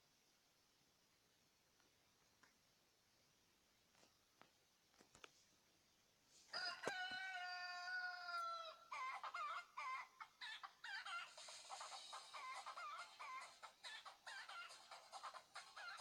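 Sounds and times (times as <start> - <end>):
chicken clucking: 6.5 - 16.0
chicken squawking: 6.6 - 16.0.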